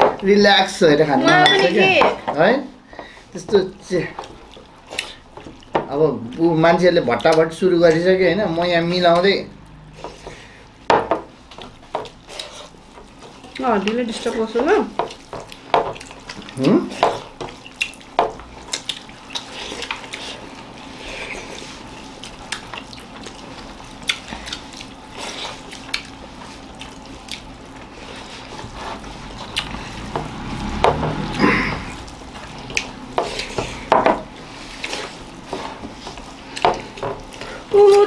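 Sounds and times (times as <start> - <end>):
chewing: 4.1 - 8.1, 9.0 - 10.8, 11.4 - 14.4, 15.0 - 37.7
fingers squelching food on plates: 7.0 - 10.8, 11.4 - 38.0.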